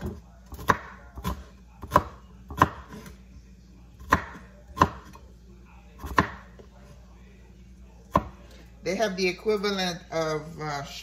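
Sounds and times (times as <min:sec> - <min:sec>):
knife chopping on cutting board: 0:00.0 - 0:03.2, 0:04.0 - 0:05.2, 0:06.0 - 0:06.6, 0:08.1 - 0:08.4.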